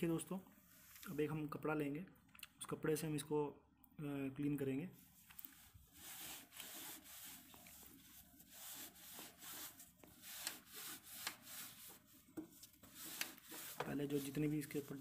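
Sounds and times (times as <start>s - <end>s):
cloth wiping battery: 5.0s - 15.0s.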